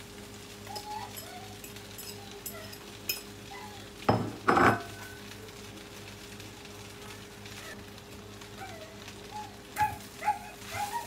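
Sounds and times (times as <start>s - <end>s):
dishes clattering on frying pan: 4.0s - 5.0s.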